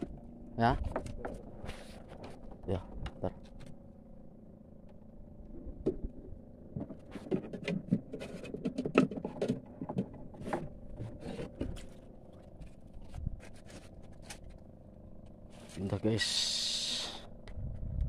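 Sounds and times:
knocks and clatters in wooden boat: 0.0 - 3.8, 5.5 - 14.6
faint steady hum: 0.0 - 18.0.

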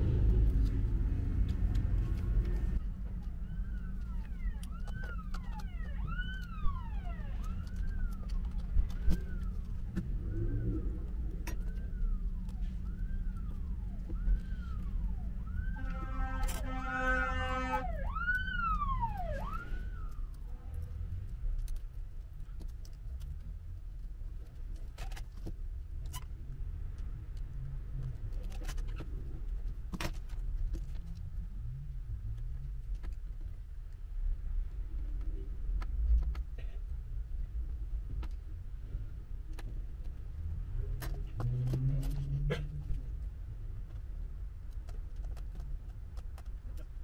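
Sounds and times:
low rumble: 0.0 - 16.2
siren wailing: 2.1 - 20.6
blaring horn tone: 15.6 - 18.2.

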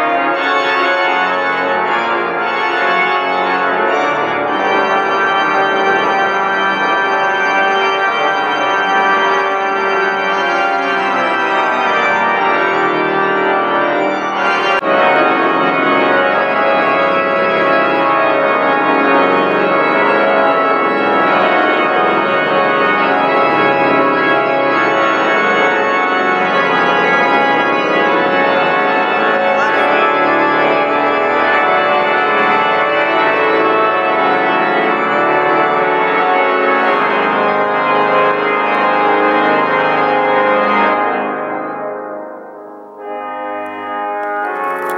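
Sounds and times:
pipe organ playing chords: 0.0 - 44.9.

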